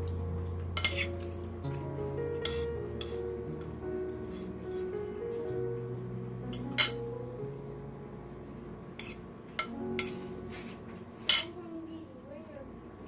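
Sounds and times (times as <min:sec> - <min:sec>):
cutlery clinking on a plate: 0:00.8 - 0:01.5, 0:06.6 - 0:07.0, 0:11.3 - 0:11.5.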